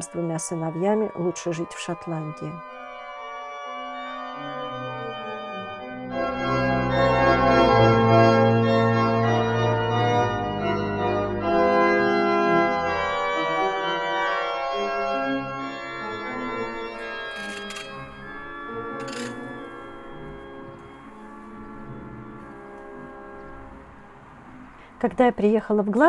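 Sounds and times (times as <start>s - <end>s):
organ chords: 0.0s - 25.0s
deep organ bass notes: 3.6s - 17.3s, 18.0s - 24.1s.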